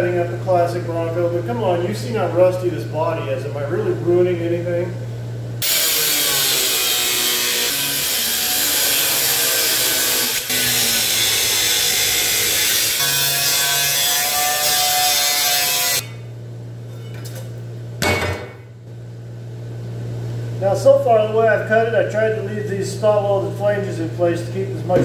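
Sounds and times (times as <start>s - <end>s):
power tool cutting sheet metal: 5.6s - 16.2s.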